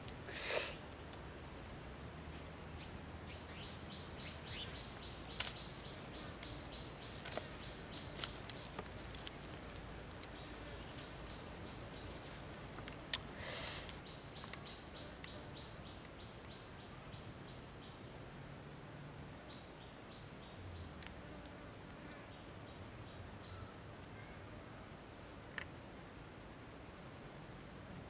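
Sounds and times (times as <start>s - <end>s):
outdoor hiss: 0.0s - 14.9s
insect chirping: 0.3s - 1.0s, 2.3s - 18.1s.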